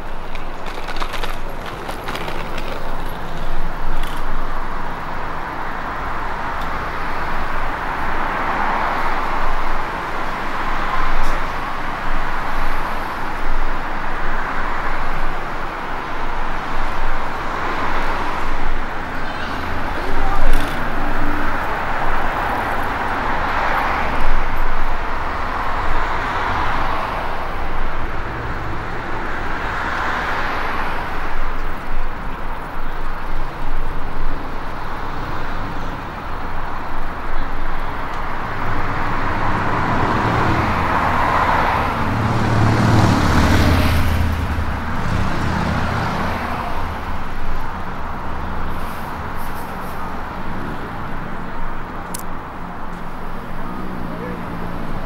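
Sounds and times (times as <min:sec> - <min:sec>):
road traffic passing: 0:00.0 - 0:55.0
vehicle engine passing close: 0:38.5 - 0:47.1.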